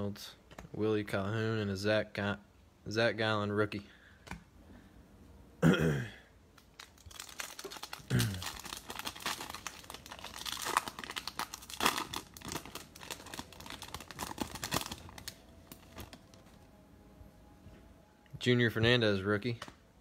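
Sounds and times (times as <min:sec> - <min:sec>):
plastic wrapper tearing and crinkling: 0:06.6 - 0:16.7.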